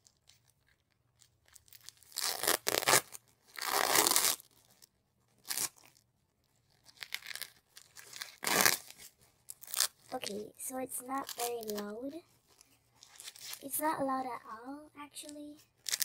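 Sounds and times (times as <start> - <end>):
plastic wrapper tearing: 0.0 - 6.0, 6.6 - 10.4, 11.0 - 13.6, 15.7 - 16.0.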